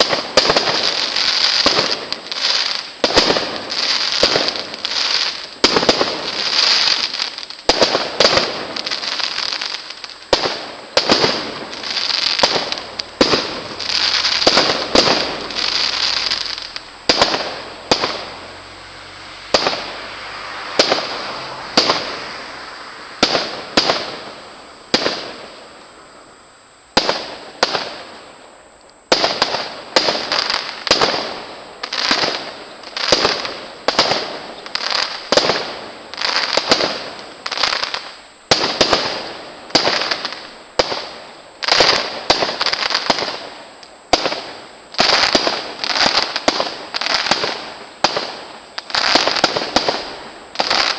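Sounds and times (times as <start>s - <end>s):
firework shells bursting: 0.0s - 18.6s.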